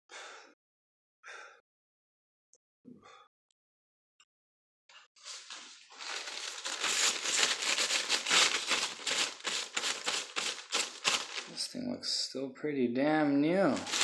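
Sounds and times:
crinkling rustling handling noise: 5.2s - 11.7s, 13.6s - 14.0s.

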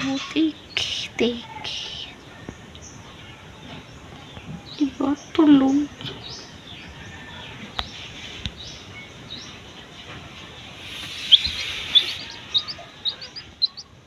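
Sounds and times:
chick peeping: 0.0s - 14.0s.

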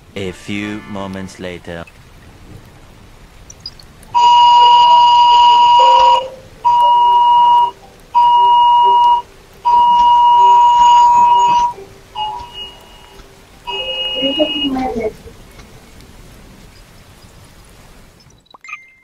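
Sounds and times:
phone emergency alert beeps: 4.2s - 15.1s.

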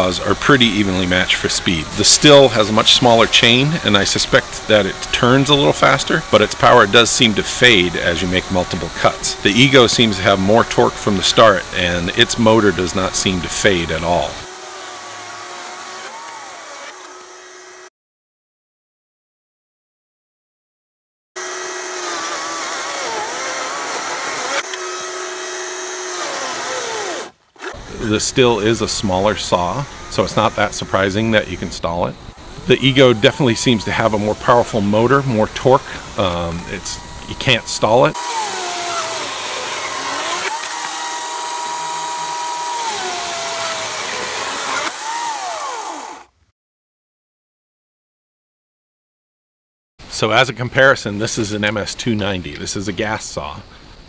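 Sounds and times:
battery chainsaw cutting wood: 0.0s - 17.9s, 21.4s - 46.4s.

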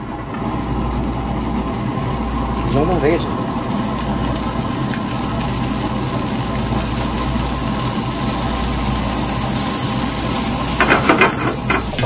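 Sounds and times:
low mechanical hum: 0.0s - 12.0s
prawns sizzling in butter: 0.4s - 12.0s.

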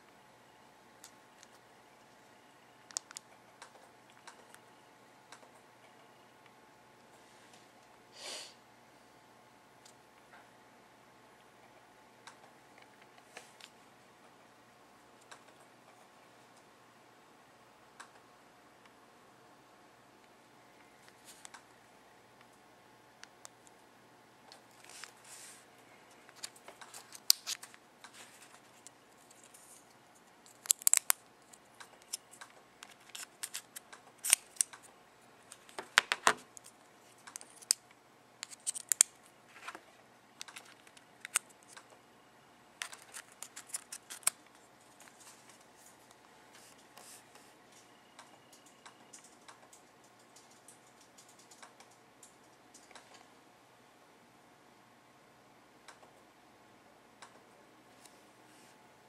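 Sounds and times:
sim card clicks and scrapes: 30.5s - 34.8s, 35.5s - 37.8s, 38.4s - 39.8s, 40.4s - 41.9s, 42.8s - 45.6s.

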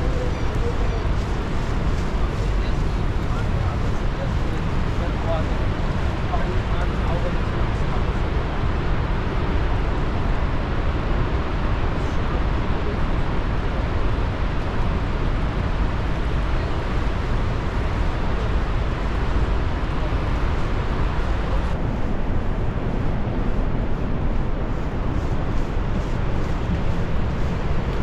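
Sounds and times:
distant waterfall roar: 0.0s - 28.0s
wind rumble on microphone: 0.0s - 28.0s.

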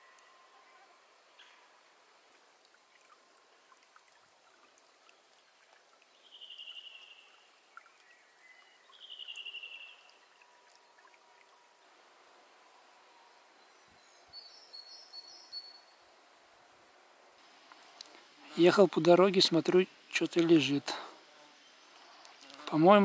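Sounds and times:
water trickling: 1.3s - 12.6s.

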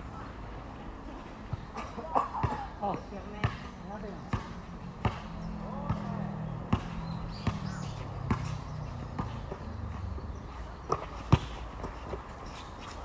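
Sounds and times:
basketball bouncing on court: 3.4s - 3.6s, 4.3s - 12.0s.

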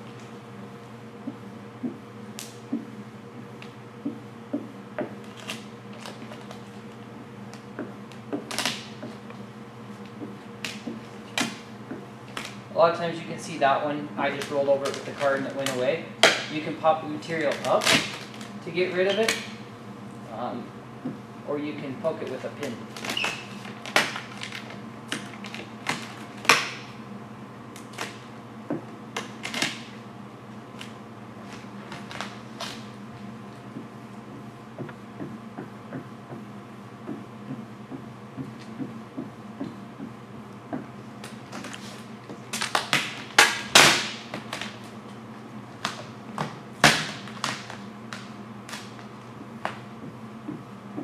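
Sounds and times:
vinyl film crackling: 12.2s - 19.6s, 21.8s - 26.8s
vinyl film scraping and crackling: 14.2s - 15.9s.

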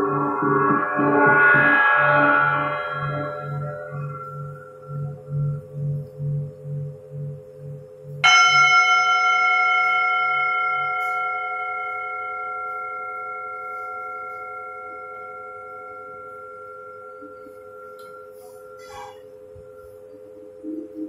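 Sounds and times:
metal bowl struck: 0.0s - 19.8s
singing bowls ringing: 0.0s - 21.0s.

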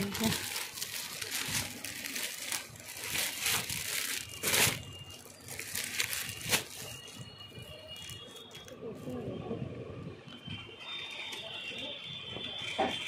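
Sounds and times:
plastic packets crinkling: 0.0s - 8.8s.

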